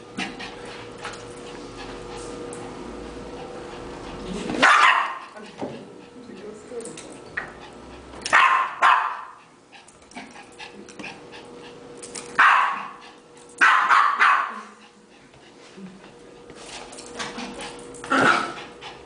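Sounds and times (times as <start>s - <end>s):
small dog barking: 4.6s - 5.3s, 8.3s - 9.4s, 12.4s - 13.0s, 13.6s - 14.7s.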